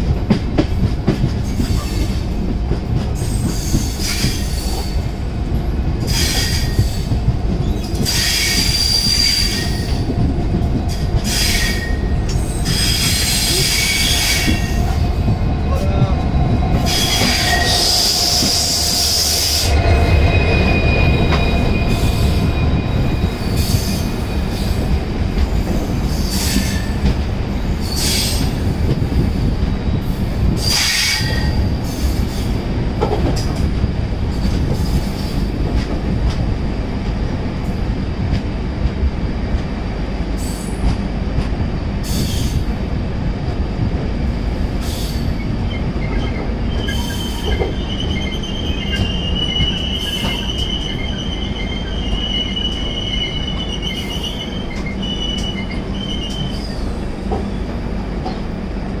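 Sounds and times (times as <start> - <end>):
train wheels rumbling on rail: 0.0 - 59.0
high wheel squeal: 6.1 - 10.0, 16.8 - 24.8, 44.9 - 57.0.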